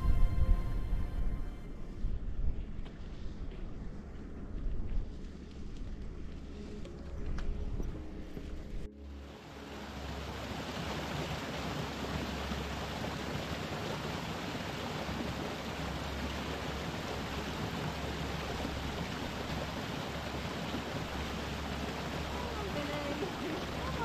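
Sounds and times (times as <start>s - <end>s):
water rushing over rocks: 9.3s - 24.0s.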